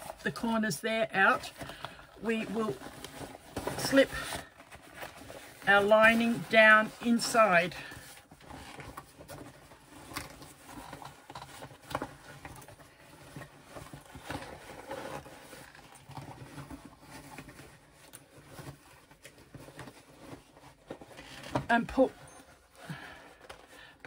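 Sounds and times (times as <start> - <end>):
fabric rustling and scuffing: 2.3 - 11.0.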